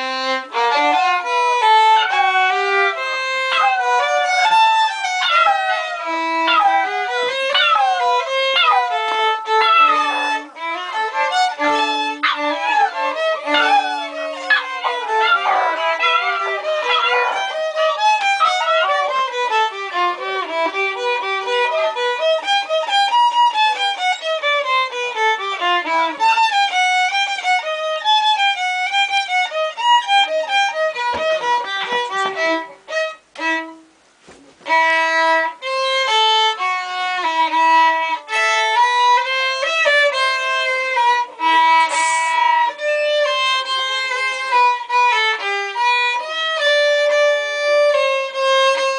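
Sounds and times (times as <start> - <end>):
violin melody: 0.0 - 48.9
puppies howling: 1.8 - 20.0, 21.5 - 22.2.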